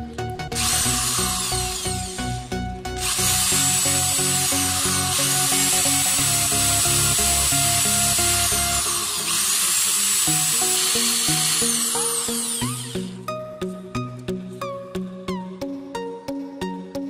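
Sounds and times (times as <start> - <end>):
electric drill whining into metal: 0.5 - 13.2.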